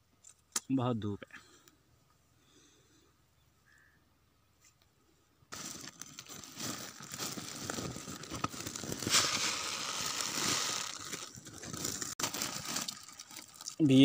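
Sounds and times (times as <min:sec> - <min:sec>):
plastic sack crinkling and rustling: 0:05.5 - 0:14.0.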